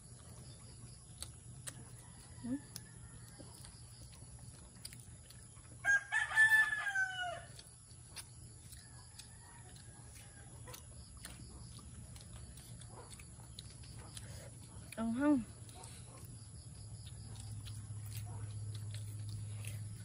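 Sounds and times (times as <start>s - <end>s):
rooster crowing: 1.9s - 3.7s, 5.8s - 7.7s, 8.7s - 10.8s.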